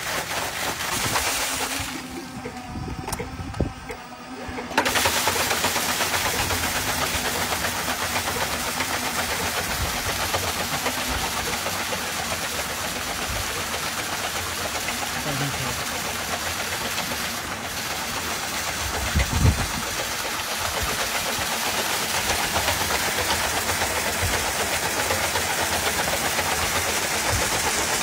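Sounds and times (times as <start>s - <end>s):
water splashing on metal wheel: 0.0s - 2.5s, 4.6s - 28.0s
water pump jet rushing: 0.0s - 28.0s.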